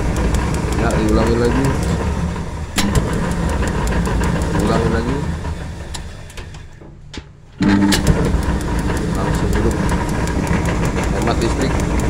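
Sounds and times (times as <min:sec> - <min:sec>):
gas burner igniting with low roar: 0:00.0 - 0:12.0
steady ticking: 0:00.0 - 0:12.0.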